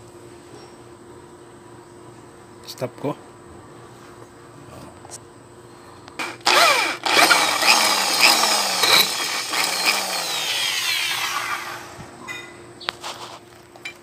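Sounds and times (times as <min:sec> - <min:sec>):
electric drill boring into metal: 0:06.2 - 0:12.0.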